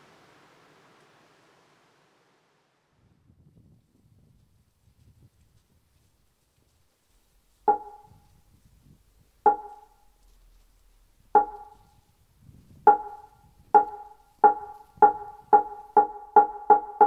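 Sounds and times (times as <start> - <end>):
wooden sounding board struck with mallet: 7.7 - 8.2, 9.5 - 10.0, 11.4 - 11.9, 12.9 - 17.0.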